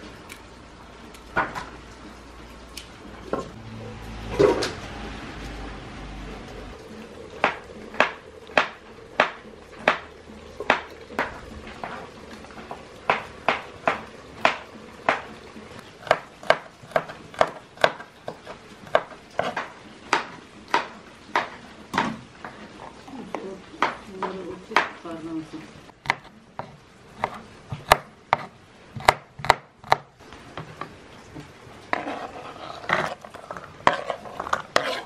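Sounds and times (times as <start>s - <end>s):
knife chopping on cutting board: 7.4s - 11.3s, 16.0s - 22.1s, 26.0s - 30.1s.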